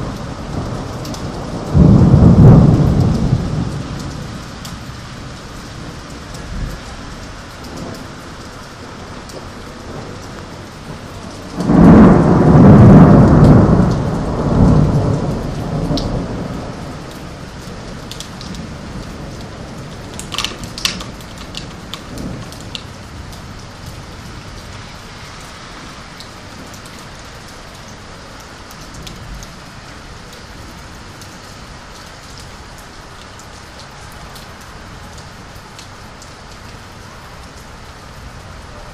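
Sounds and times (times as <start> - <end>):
thunder clap rumbling: 0.0 - 26.0
steady rain: 0.0 - 38.9.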